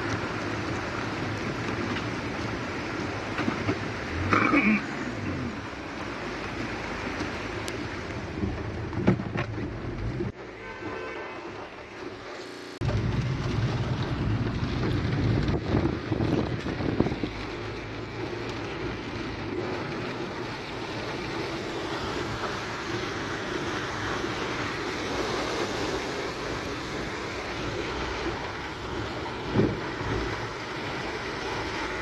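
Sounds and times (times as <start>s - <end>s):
tyres hissing through water: 0.0s - 8.7s, 17.1s - 32.0s
rain on a car: 0.0s - 32.0s.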